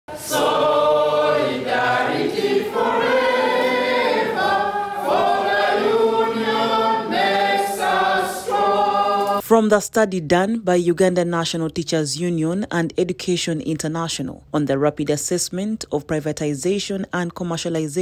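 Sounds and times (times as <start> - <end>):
men and women singing: 0.1 - 9.4.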